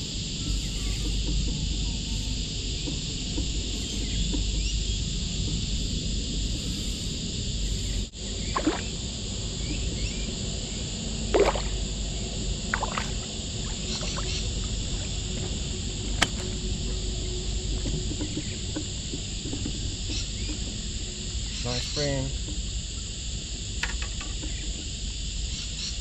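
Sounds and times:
insects hissing: 0.0 - 26.0
wind rumble on microphone: 0.0 - 26.0.

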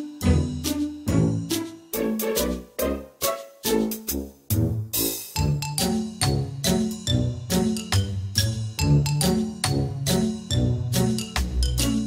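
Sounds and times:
bass line with steady beat: 4.0 - 12.0.

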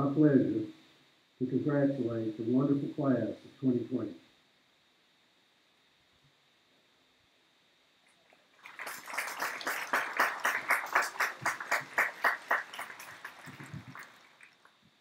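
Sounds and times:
hands clapping: 8.3 - 14.7.

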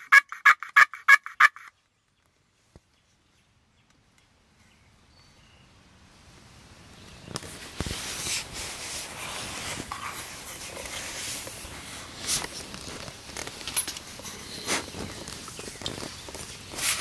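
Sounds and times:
box turkey call scraping: 0.0 - 1.7.

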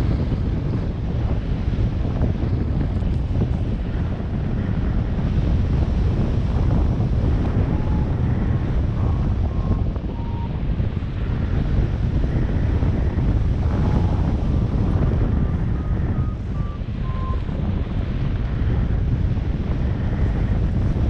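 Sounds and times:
wind buffeting microphone: 0.0 - 21.0
short faint beeps: 16.0 - 17.5.

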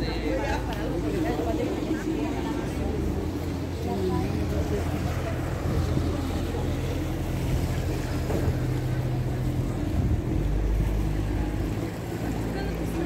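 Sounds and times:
boat motor humming: 0.0 - 13.0
wind on microphone: 4.2 - 11.4.

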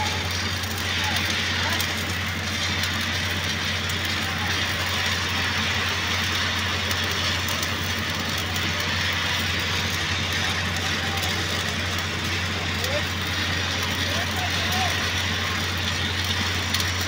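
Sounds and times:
welding arc crackling hiss: 0.0 - 17.0.

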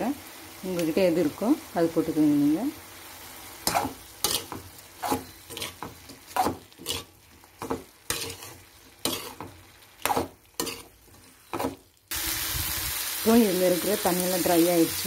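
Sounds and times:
faint frying sizzle: 0.0 - 15.0
spoon scraping a metal pan: 3.6 - 11.8.

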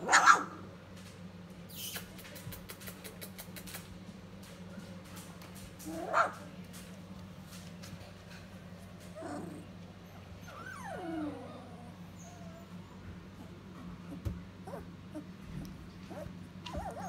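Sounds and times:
puppy whining: 9.0 - 17.0
puppies yipping: 16.0 - 17.0.

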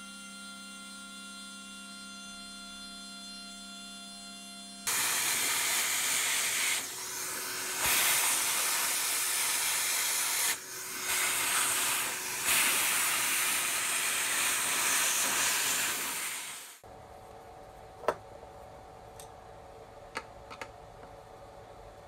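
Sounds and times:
vacuum cleaner sucking up chips: 4.9 - 16.8.

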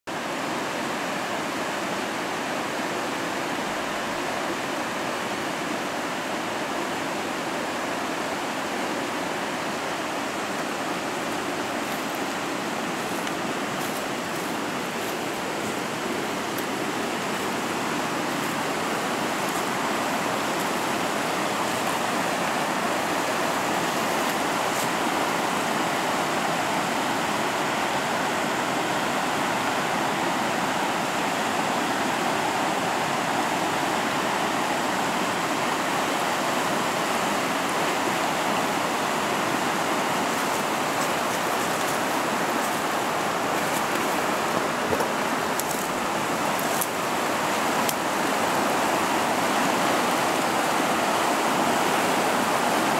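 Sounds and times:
water rushing over rocks: 0.1 - 52.9.

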